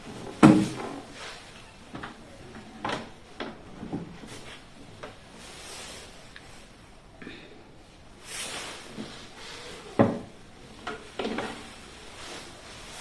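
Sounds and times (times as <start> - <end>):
drawer trays knocking and clicking: 0.2 - 1.0, 10.0 - 11.6
rubbing hiss: 5.3 - 6.4, 8.1 - 13.0.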